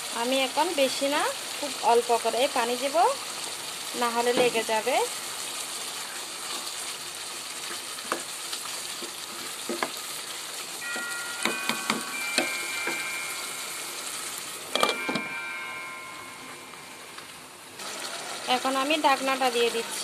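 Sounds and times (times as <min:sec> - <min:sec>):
curry sizzling in saucepan: 0:00.0 - 0:20.0
spoon knocking against pan: 0:09.0 - 0:10.0, 0:10.9 - 0:13.2, 0:14.7 - 0:15.4
glass lid clinking on pan: 0:10.8 - 0:13.4, 0:14.7 - 0:16.6.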